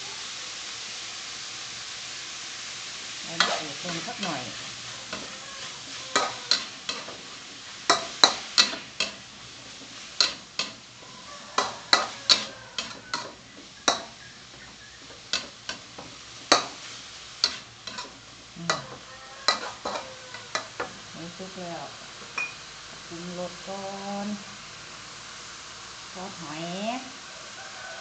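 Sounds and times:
meat sizzling: 0.0s - 28.0s
metal spatula scraping a wok: 3.3s - 21.4s.

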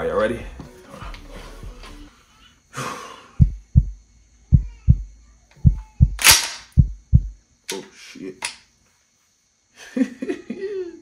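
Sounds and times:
heartbeat double thuds: 3.4s - 6.2s, 6.8s - 7.4s.

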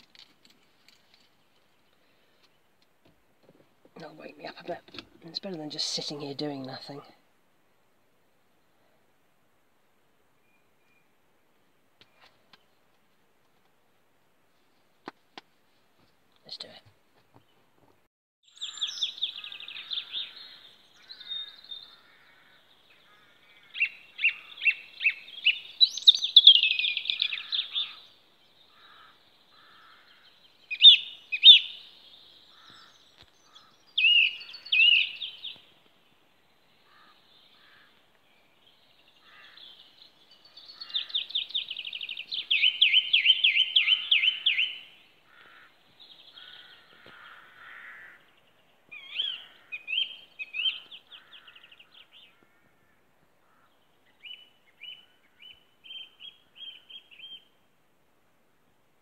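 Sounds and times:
song thrush singing: 18.4s - 52.6s, 53.4s - 57.7s.

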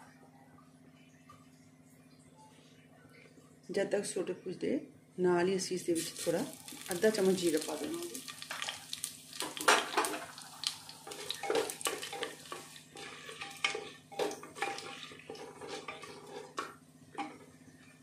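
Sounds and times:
spices frying in oil: 5.9s - 17.9s
wooden spatula scraping pot: 11.0s - 17.5s.

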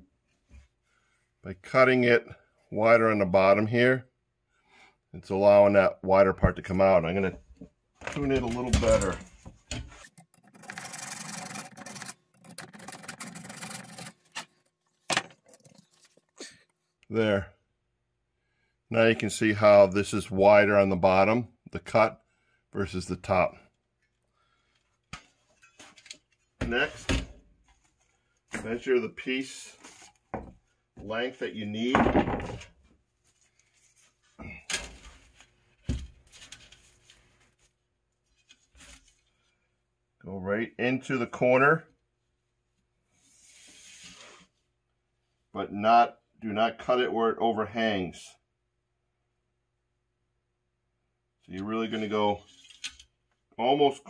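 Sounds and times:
hacksaw scraping strokes: 9.9s - 14.5s.

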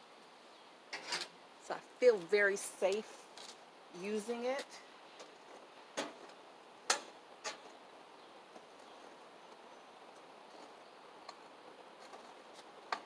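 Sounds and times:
faint outdoor background: 0.0s - 13.0s.

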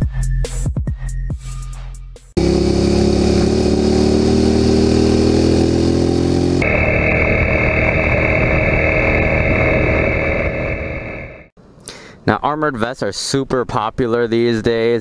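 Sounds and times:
motorcycle engine running: 2.4s - 10.9s.

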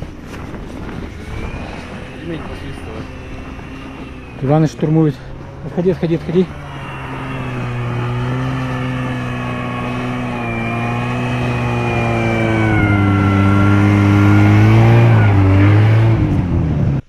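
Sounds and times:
snowmobile engine under load: 0.0s - 17.0s.

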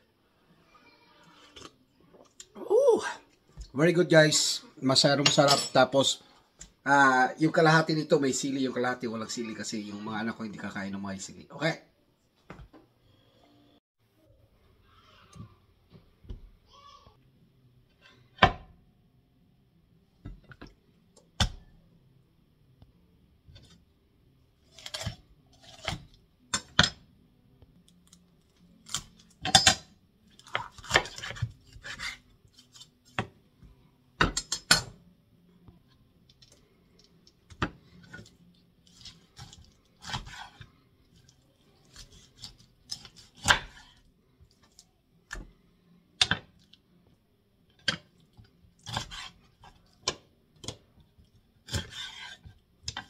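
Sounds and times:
knife cutting and scraping: 24.6s - 26.2s, 30.4s - 33.1s, 38.0s - 44.0s, 48.8s - 50.0s, 51.6s - 53.0s.

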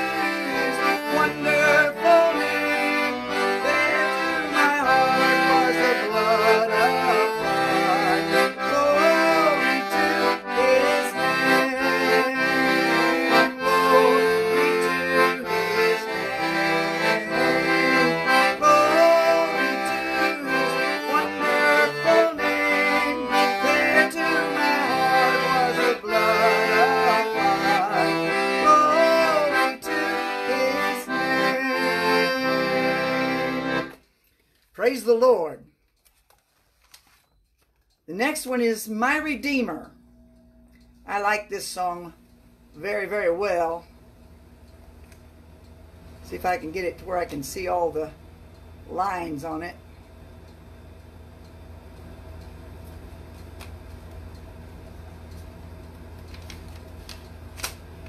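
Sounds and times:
piano accordion playing a hymn: 0.0s - 34.0s.

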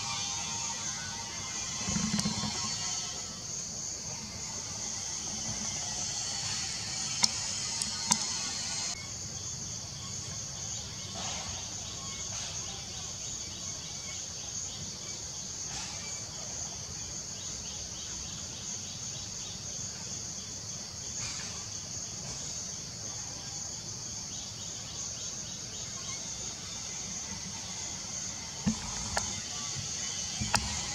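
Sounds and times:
high-pitched insect drone: 0.0s - 16.6s, 23.0s - 30.9s.

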